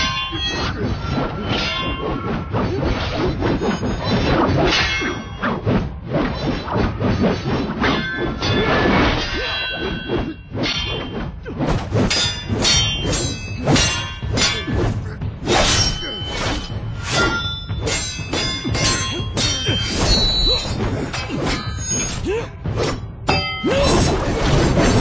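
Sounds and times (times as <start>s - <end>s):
metal blades clashing: 0.0s - 25.0s
whacks and thuds: 10.8s - 23.1s.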